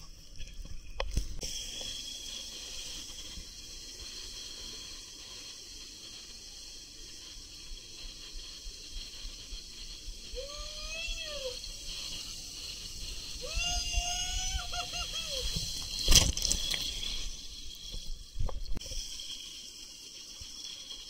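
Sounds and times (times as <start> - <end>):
water rushing through slide: 8.3 - 21.0
person calling out: 10.4 - 11.6, 13.4 - 15.6.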